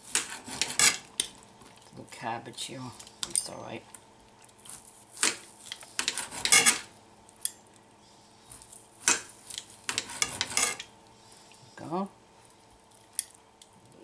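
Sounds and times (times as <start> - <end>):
knife scraping ceramic plate: 0.1 - 1.1, 6.0 - 6.9, 9.9 - 10.8.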